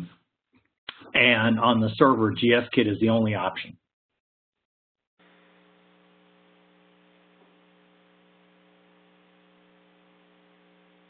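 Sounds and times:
faint electrical hum with hiss: 5.2s - 11.0s.

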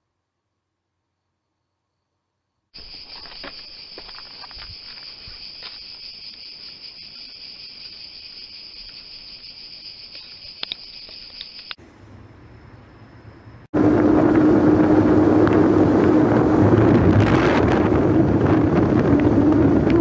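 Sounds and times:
insects chirring: 1.3s - 13.7s.

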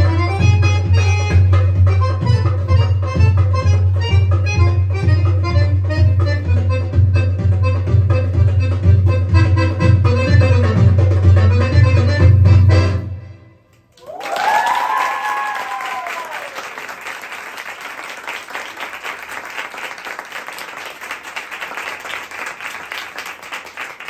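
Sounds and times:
audience applauding: 13.9s - 24.0s
high-pitched whooping cheers: 14.0s - 16.8s.

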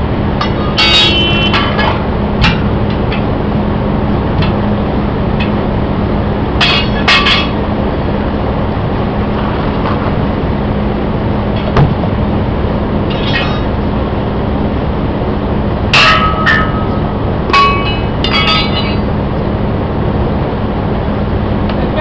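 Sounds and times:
steady hum: 0.0s - 22.0s
tire iron clanking on wheel rim: 0.3s - 8.4s, 9.2s - 10.4s, 11.4s - 14.2s, 15.8s - 19.6s.

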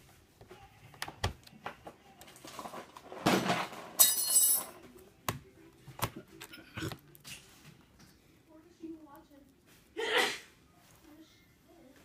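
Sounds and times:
metallic clink: 4.0s - 4.8s.

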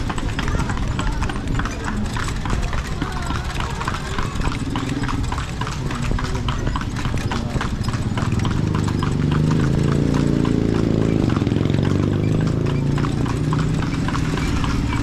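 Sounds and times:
horse hooves clip-clopping: 0.0s - 15.0s.

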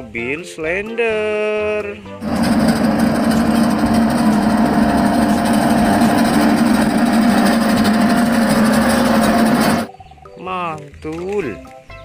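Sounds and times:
road roller diesel engine: 2.2s - 9.9s.

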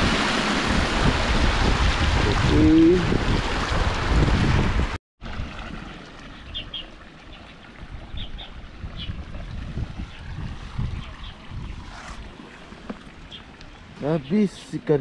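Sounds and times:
wind buffeting microphone: 0.0s - 5.7s, 7.8s - 14.0s
wind rumble: 0.0s - 5.8s, 7.8s - 14.0s.

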